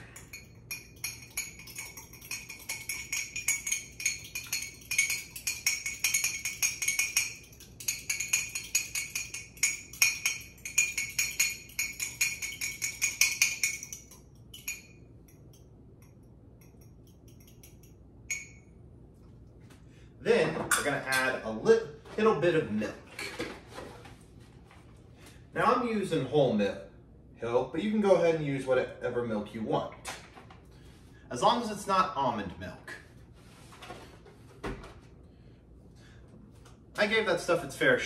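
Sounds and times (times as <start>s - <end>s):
utensil clinking against mug: 0.0s - 18.6s.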